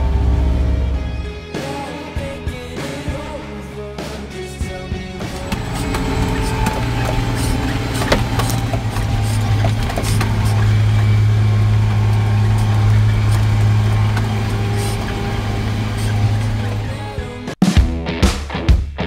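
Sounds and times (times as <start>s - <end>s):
tractor diesel engine drone: 0.0s - 1.3s, 5.2s - 17.6s.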